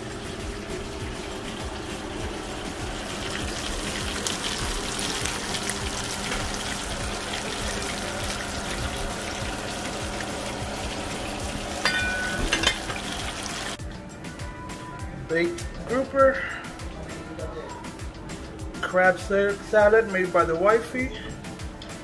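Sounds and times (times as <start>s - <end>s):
fish frying in hot oil: 0.0s - 13.8s.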